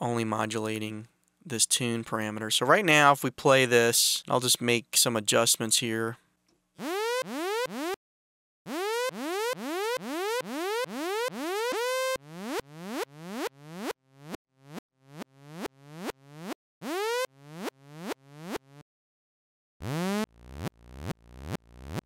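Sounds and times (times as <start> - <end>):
synthesizer notes with pitch sweep: 6.8 - 8.0, 8.7 - 18.8, 19.8 - 22.0.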